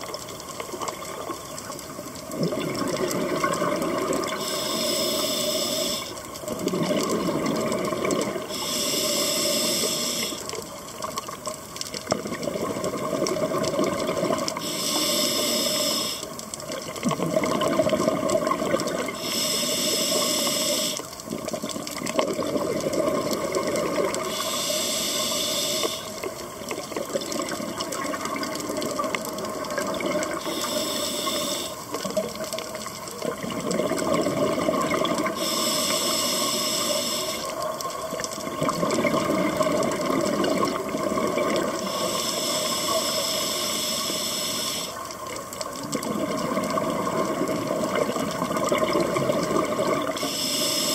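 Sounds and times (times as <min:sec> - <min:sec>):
exhaled air bubbling: 0:00.0 - 0:50.9
regulator hissing inhale: 0:04.3 - 0:06.3, 0:08.4 - 0:10.6, 0:14.6 - 0:16.3, 0:19.1 - 0:21.1, 0:24.2 - 0:26.3, 0:30.4 - 0:31.8, 0:35.3 - 0:37.6, 0:41.8 - 0:45.0, 0:50.2 - 0:50.9.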